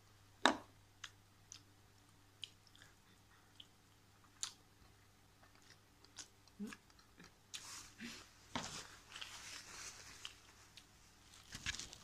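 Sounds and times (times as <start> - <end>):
soft mouth clicks and smacks: 0.5 - 7.7
quiet chewing: 1.0 - 12.0.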